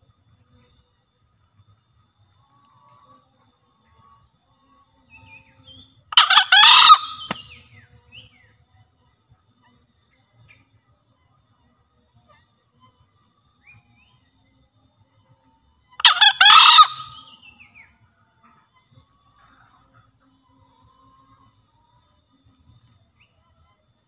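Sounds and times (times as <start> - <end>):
small birds chirping: 5.0 - 23.4
junglefowl crowing: 6.2 - 7.5, 16.0 - 17.4.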